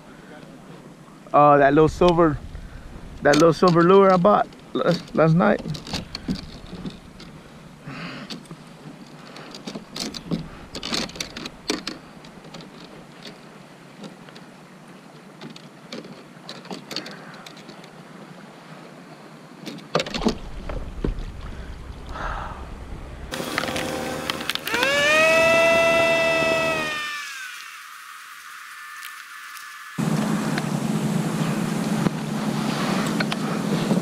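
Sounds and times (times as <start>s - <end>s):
low rumble: 1.8s - 3.3s, 20.2s - 24.7s
water washing: 20.0s - 34.0s.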